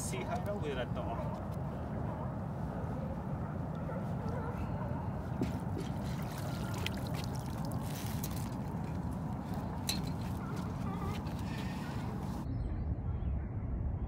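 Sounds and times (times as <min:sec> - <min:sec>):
water pouring and dripping: 0:05.8 - 0:10.4
wire pot clattering on dock: 0:09.7 - 0:10.7.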